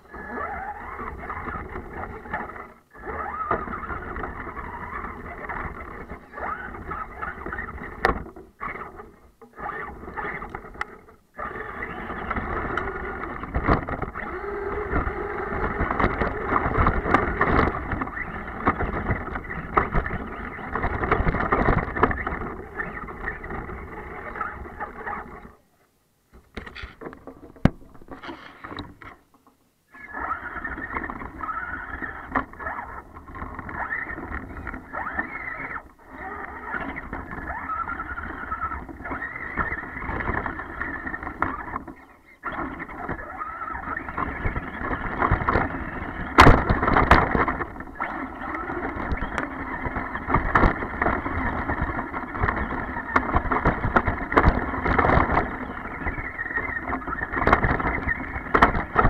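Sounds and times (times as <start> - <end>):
tyres churning through snow: 0.0 - 8.0, 11.4 - 25.4, 30.0 - 41.8, 42.4 - 59.0
electric motor running: 0.0 - 25.6
knocks and bumps: 26.3 - 29.5.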